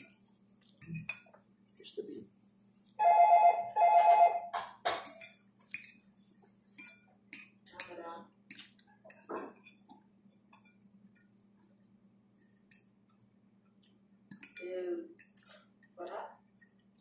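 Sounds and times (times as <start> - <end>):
electronic tone: 3.0 - 4.5
cutlery clinking on plates: 4.6 - 6.0.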